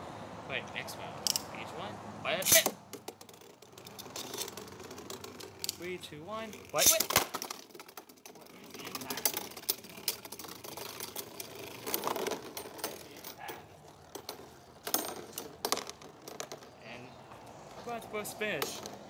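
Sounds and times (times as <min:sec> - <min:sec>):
spinning tops clattering: 0:02.4 - 0:16.8.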